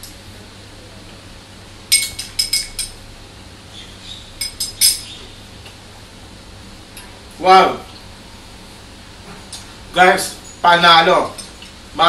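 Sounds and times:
metal spoon clinking ceramic bowl: 1.9 - 3.0.

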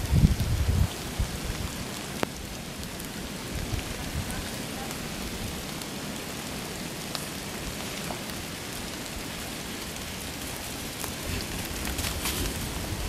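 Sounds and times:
dog running through dry leaves: 10.2 - 13.0.

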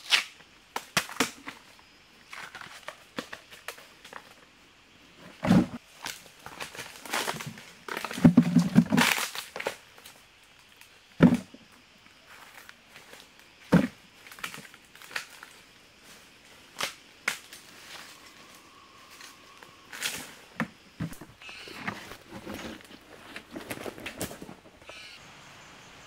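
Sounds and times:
rustling in dry leaves: 12.2 - 25.2.

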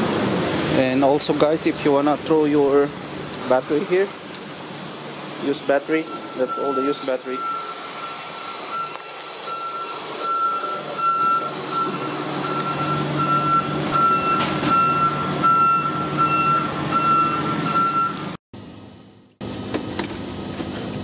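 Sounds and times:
reversing alarm beeping: 5.9 - 18.4.

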